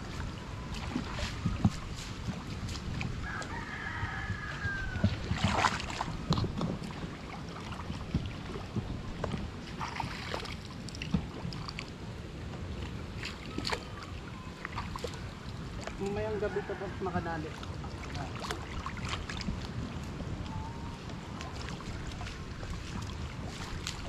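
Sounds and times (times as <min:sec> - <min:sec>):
water sloshing and splashing: 0:00.0 - 0:24.0
rooster crowing: 0:03.2 - 0:05.3, 0:16.2 - 0:17.4.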